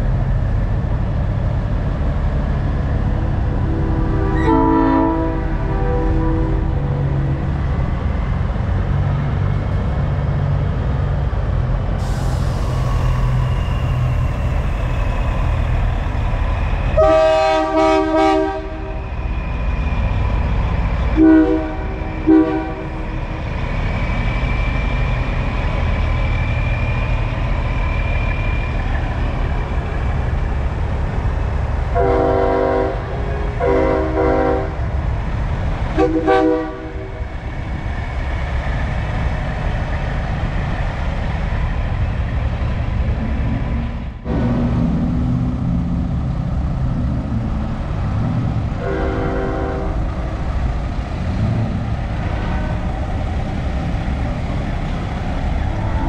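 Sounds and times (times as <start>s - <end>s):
diesel truck engines rumbling: 0.0s - 36.0s, 36.6s - 56.0s
truck air horn blasts: 4.2s - 6.6s, 17.0s - 19.0s, 21.2s - 23.0s, 32.0s - 34.8s, 36.0s - 37.1s, 48.8s - 50.0s.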